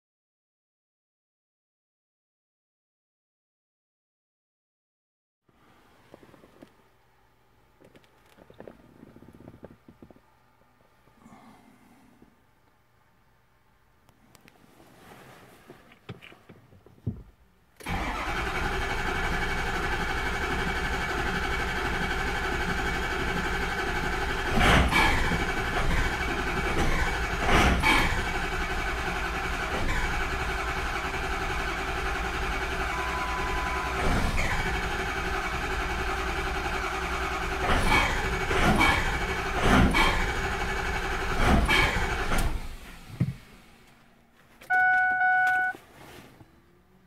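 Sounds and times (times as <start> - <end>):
diesel engine starter cranking: 17.8 - 44.0.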